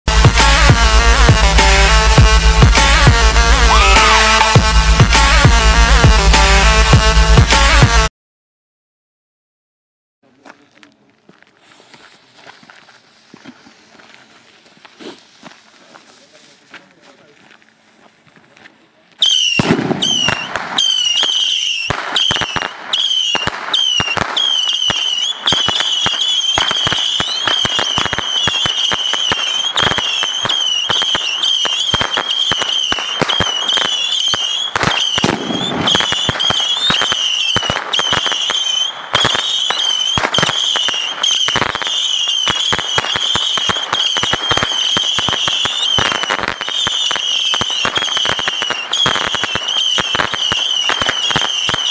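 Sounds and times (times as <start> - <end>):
firework rockets whistling: 0.1 - 8.1, 11.7 - 16.3, 19.2 - 51.9
firework cracks and pops: 19.2 - 51.9.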